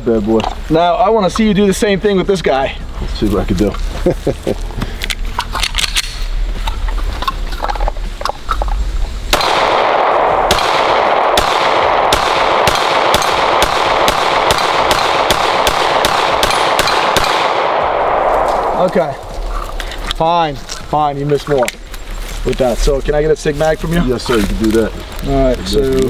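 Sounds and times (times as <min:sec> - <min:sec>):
pistol shots: 0:09.3 - 0:18.9.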